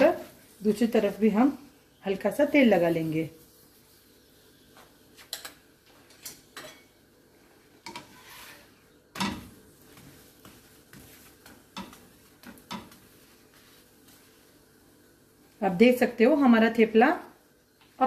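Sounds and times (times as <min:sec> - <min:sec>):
spoon knocking on griddle: 0:09.1 - 0:09.5, 0:11.0 - 0:13.0.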